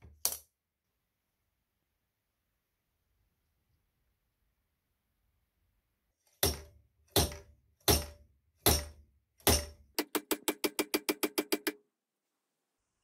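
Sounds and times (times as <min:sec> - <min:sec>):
slide hammer metallic strikes: 0:06.4 - 0:11.8.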